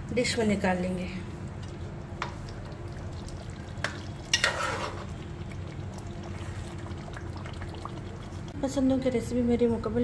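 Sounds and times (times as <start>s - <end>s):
spoon scraping metal pot: 4.3s - 5.1s.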